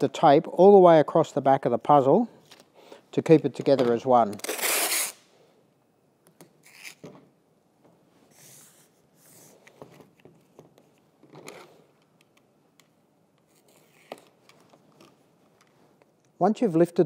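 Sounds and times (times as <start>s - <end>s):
tape peeling and rubbing: 4.2s - 5.3s, 6.5s - 7.3s, 13.4s - 16.1s
craft knife cutting tape: 4.4s - 5.2s, 6.6s - 7.1s.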